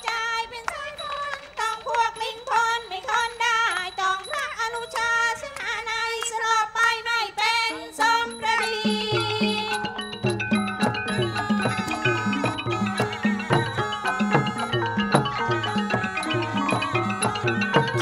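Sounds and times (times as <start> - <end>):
high wavering lead melody: 8.3 - 18.0
steady held tone: 8.7 - 18.0.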